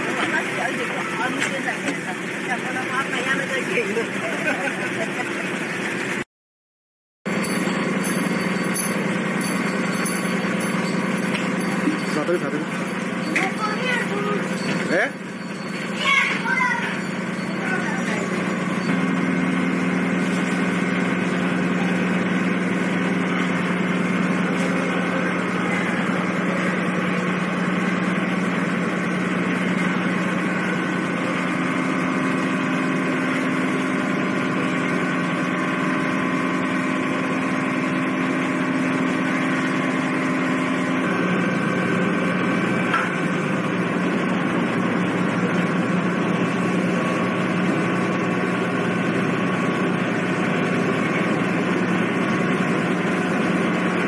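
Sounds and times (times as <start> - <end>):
diesel engines droning: 0.0 - 6.2, 7.3 - 54.0.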